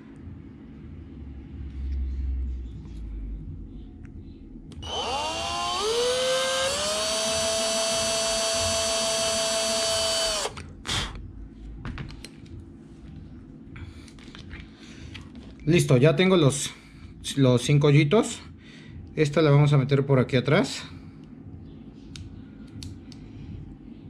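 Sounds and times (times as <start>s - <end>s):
electric drill whining: 4.8s - 11.2s.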